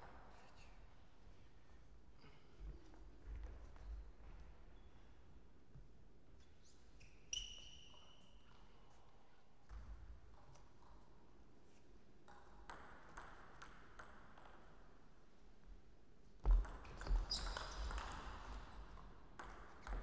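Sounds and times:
table tennis ball bouncing: 0:12.3 - 0:14.6, 0:16.5 - 0:20.0.

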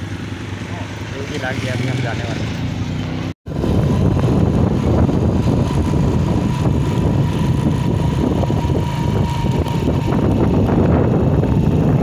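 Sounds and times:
motorcycle engine running: 0:00.0 - 0:12.0
wind rumbling on microphone: 0:03.5 - 0:12.0.

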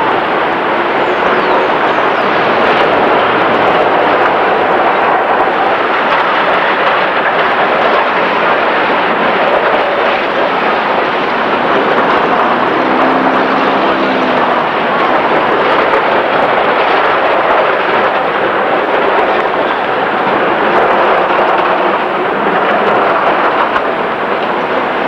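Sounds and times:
cars passing: 0:00.0 - 0:06.1, 0:09.0 - 0:17.0
busy street roar: 0:00.0 - 0:25.0.

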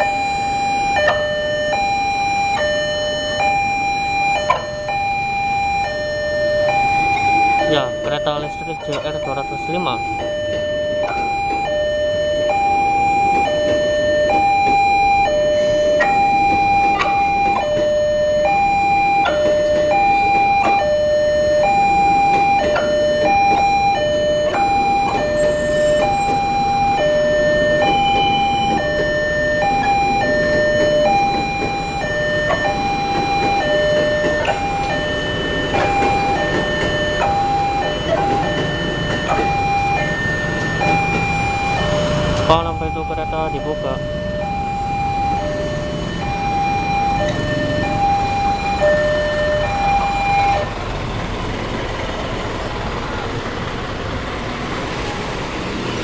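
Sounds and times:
electric train passing: 0:00.0 - 0:56.0
level-crossing two-tone chime: 0:01.8 - 0:04.6, 0:29.8 - 0:50.7.

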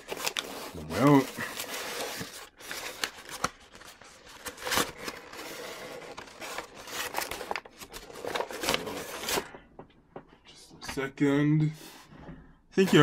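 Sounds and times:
packing paper rustling and crinkling: 0:00.0 - 0:09.5.

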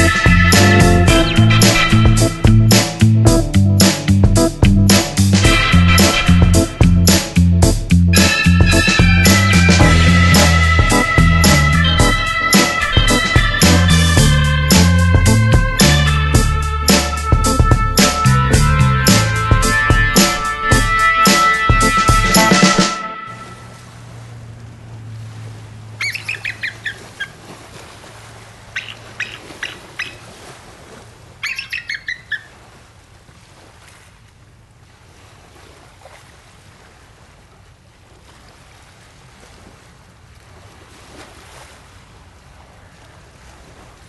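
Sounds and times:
low hum: 0:00.0 - 0:26.8
eagle chirping call: 0:26.0 - 0:27.4, 0:28.8 - 0:30.2, 0:31.4 - 0:32.5.

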